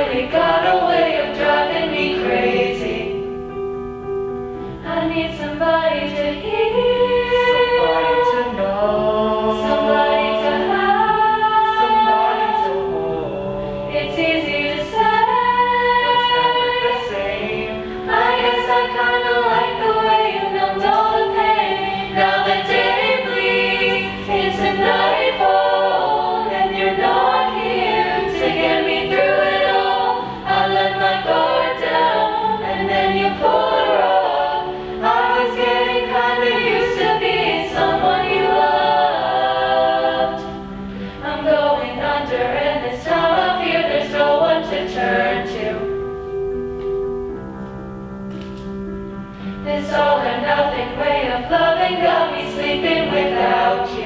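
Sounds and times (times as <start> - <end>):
choir singing in harmony: 0.0 - 47.5, 49.0 - 54.0.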